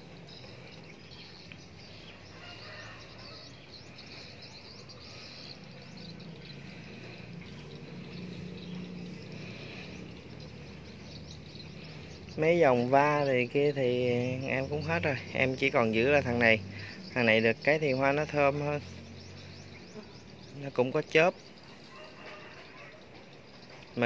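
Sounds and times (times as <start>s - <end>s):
steady low hum: 0.0s - 17.2s
small birds chirping: 0.0s - 24.0s.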